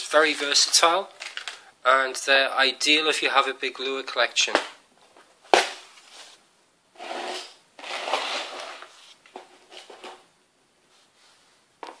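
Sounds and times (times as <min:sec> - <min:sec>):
scraping rustling handling noise: 0:05.1 - 0:06.4.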